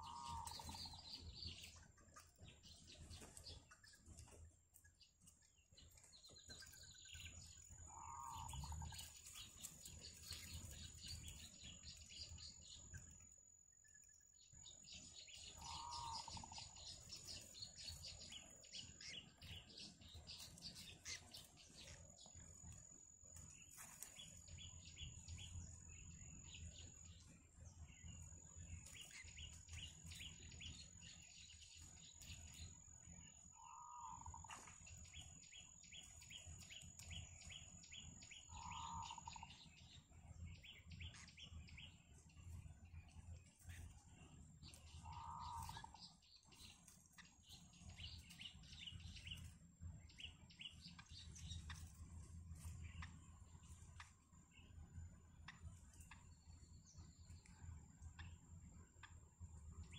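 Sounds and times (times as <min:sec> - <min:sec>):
short lower bird calls: 0:00.0 - 0:01.0, 0:07.9 - 0:08.9, 0:15.5 - 0:16.8, 0:33.6 - 0:34.5, 0:38.4 - 0:39.6, 0:45.0 - 0:46.0
bird chicks chirping: 0:00.0 - 0:59.9.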